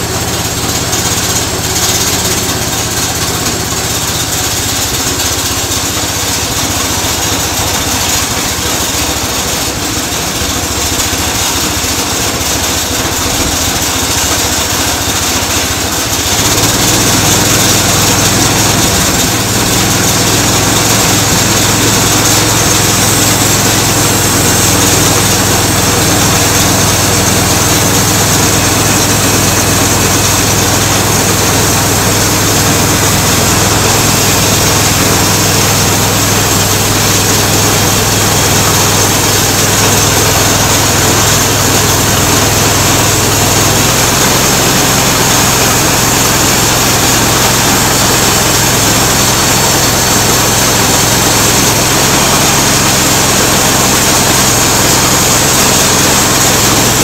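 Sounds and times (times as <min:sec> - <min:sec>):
bandsaw blade sawing log: 0:00.0 - 0:57.0
small gasoline engine running: 0:00.0 - 0:57.0.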